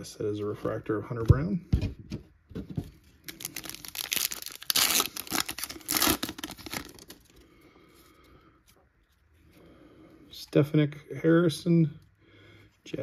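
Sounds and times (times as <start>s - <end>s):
wrapper tearing and crinkling: 3.2s - 7.3s.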